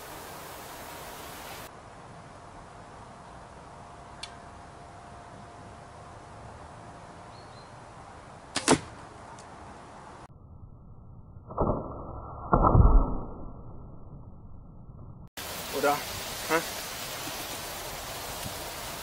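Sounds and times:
arrow striking pumpkin: 0:08.5 - 0:09.0.

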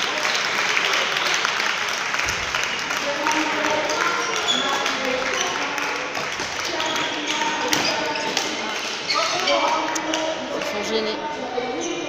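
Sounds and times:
echoing voices: 0:00.0 - 0:12.0
racket hitting shuttlecock: 0:06.7 - 0:09.8.

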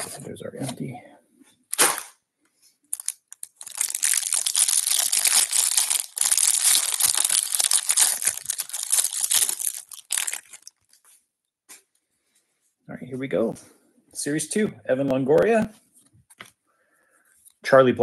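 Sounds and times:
plastic wrapper crinkling: 0:02.9 - 0:11.0.

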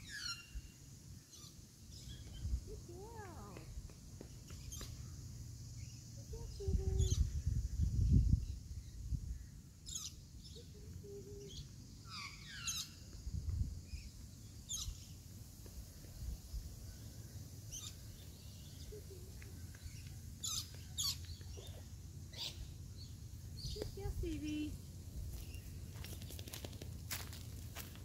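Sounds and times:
wind rumble on microphone: 0:02.2 - 0:03.9, 0:06.3 - 0:09.5, 0:13.2 - 0:14.1
birds chirping: 0:04.2 - 0:13.3, 0:17.0 - 0:26.8.

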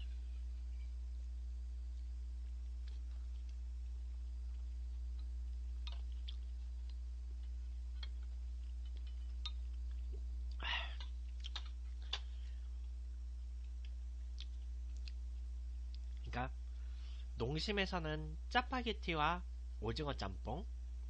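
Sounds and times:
low hum: 0:00.0 - 0:21.0
eating mouth sounds: 0:02.0 - 0:12.6.

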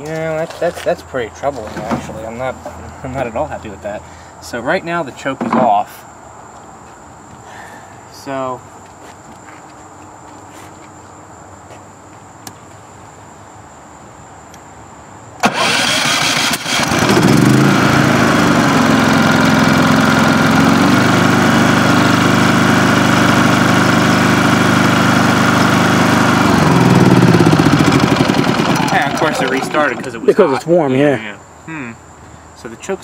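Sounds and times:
generator engine starting and running: 0:15.4 - 0:30.3.

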